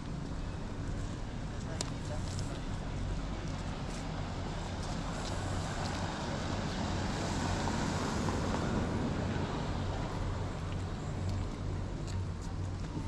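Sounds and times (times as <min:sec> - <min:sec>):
vehicle passing: 0:04.2 - 0:11.9.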